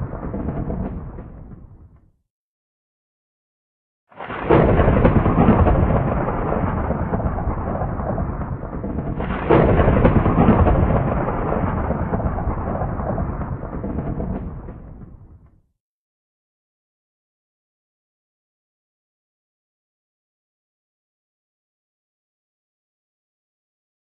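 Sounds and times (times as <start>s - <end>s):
thunder crack and rumble: 0.0s - 2.2s, 4.2s - 15.7s.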